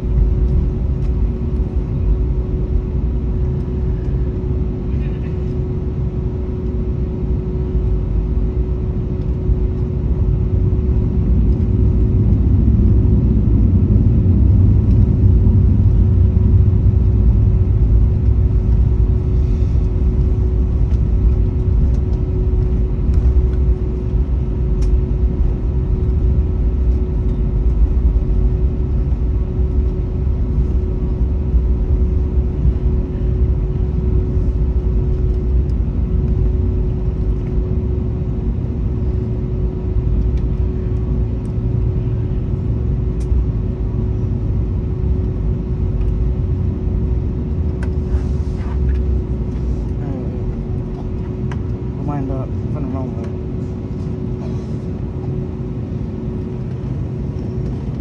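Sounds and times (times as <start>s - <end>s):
aircraft engines low rumble: 0.0s - 58.0s
steady hum: 0.0s - 58.0s.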